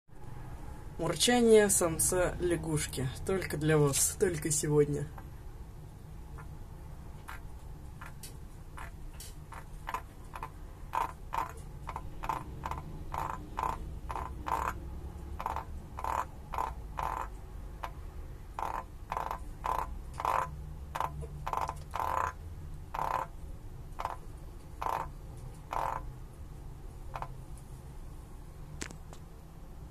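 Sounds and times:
frog croaking: 7.2 - 26.3, 27.0 - 27.5.

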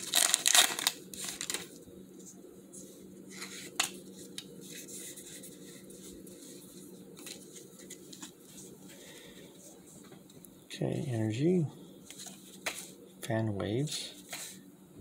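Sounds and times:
foil wrapper crinkling: 0.0 - 1.8.

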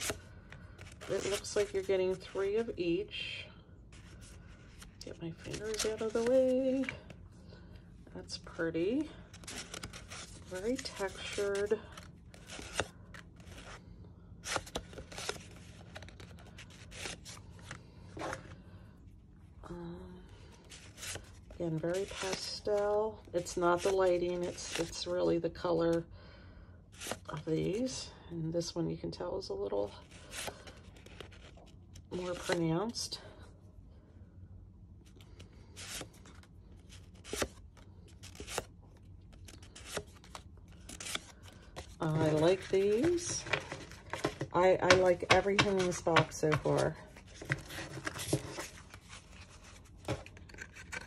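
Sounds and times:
paper cards rustling and flicking: 0.0 - 2.7, 3.9 - 7.2, 8.9 - 18.6, 20.6 - 25.1, 30.0 - 32.7, 35.1 - 51.0
cards sliding and flicking: 37.1 - 37.6.

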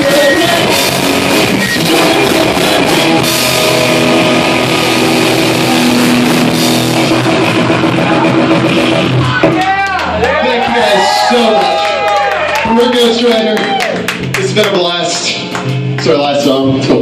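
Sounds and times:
drum kit with cymbal crashes: 0.0 - 9.6
distorted electric guitar: 0.0 - 10.4
bass guitar: 0.0 - 17.0.

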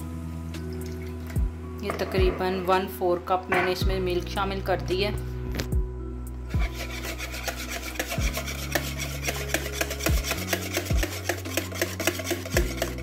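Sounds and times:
whisk scraping plastic bowl: 6.6 - 13.0.

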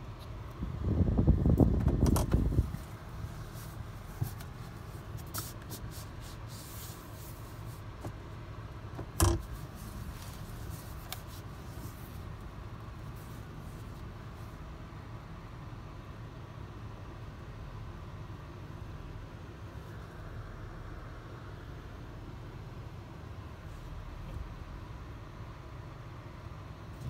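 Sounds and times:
handling rubbing and scraping: 1.9 - 8.3, 9.0 - 14.6.

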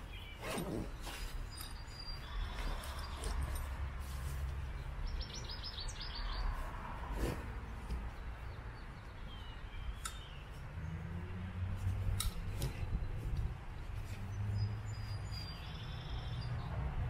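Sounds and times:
small bird chirping: 0.0 - 3.5, 5.0 - 6.5, 8.1 - 10.6
nylon bag rustling: 0.0 - 4.9.

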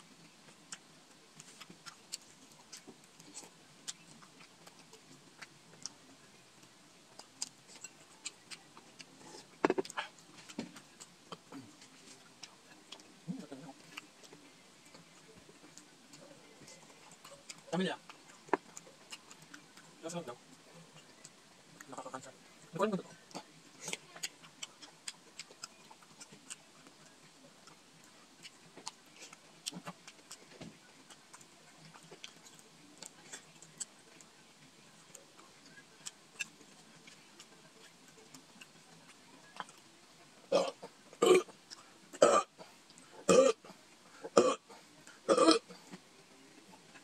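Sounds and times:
mouth and eating clicks: 0.2 - 20.2, 23.0 - 34.4, 35.0 - 39.9
man burping loudly: 40.5 - 41.5, 42.2 - 42.5, 43.3 - 43.6, 44.3 - 44.6, 45.3 - 45.7.

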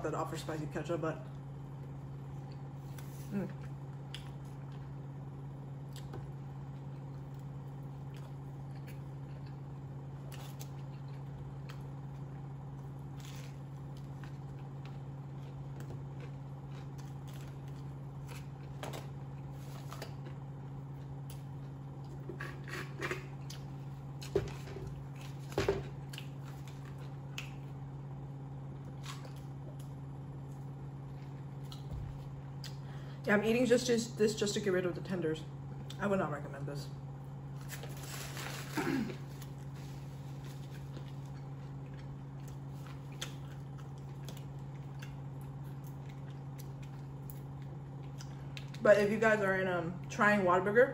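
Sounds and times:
chewing and biting food: 5.8 - 27.8, 39.4 - 48.8.

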